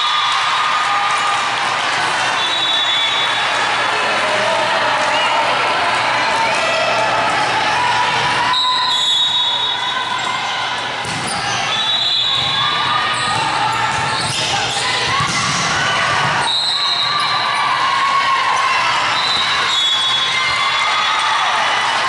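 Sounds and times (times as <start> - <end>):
echoing din of voices: 0.0 - 22.0
volleyball being hit and bouncing: 11.0 - 11.6, 12.2 - 16.6.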